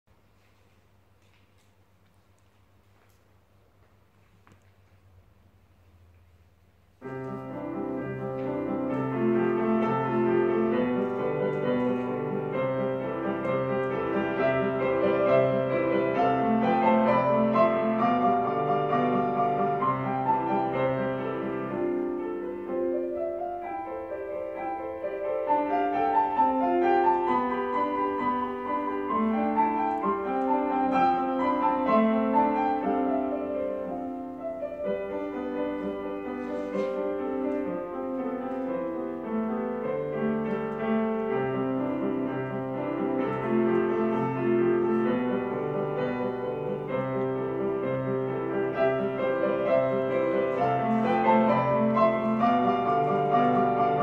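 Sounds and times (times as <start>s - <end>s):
grand piano classical piece: 0.1s - 54.0s.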